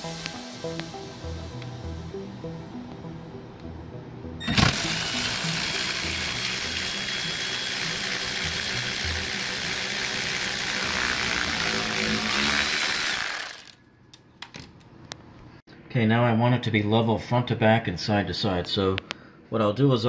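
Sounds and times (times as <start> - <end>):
quiet background music: 0.0 - 12.2
cordless ratchet motor whining: 4.4 - 13.8.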